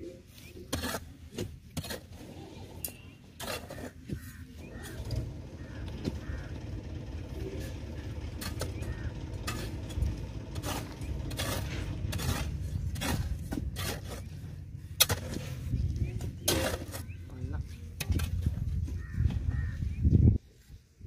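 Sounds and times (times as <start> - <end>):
steady low rumble: 4.2 - 20.5.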